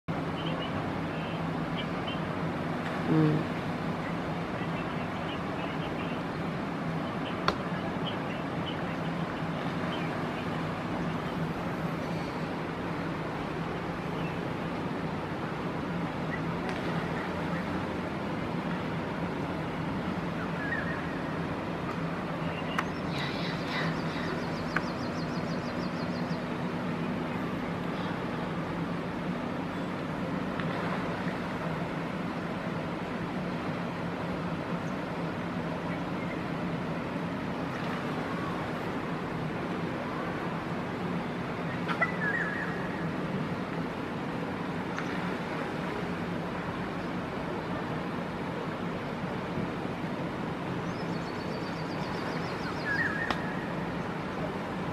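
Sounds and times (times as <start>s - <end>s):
low background rumble with hum: 0.1s - 54.9s
faint high bird chirps: 22.4s - 26.5s
wavering bird call: 41.8s - 42.9s, 52.6s - 53.6s.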